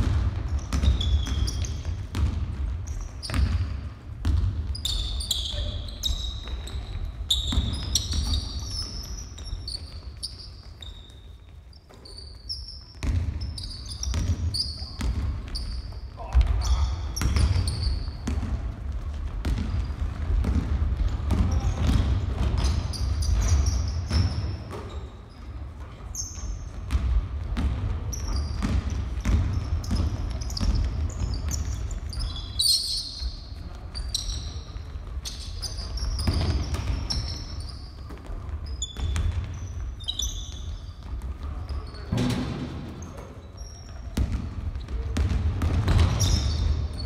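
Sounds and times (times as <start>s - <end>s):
basketball bouncing on wooden floor: 0.0s - 5.1s, 6.0s - 11.0s, 13.0s - 25.1s, 26.4s - 32.1s, 34.3s - 43.1s, 43.9s - 47.0s
sneaker squeaks: 0.0s - 47.0s.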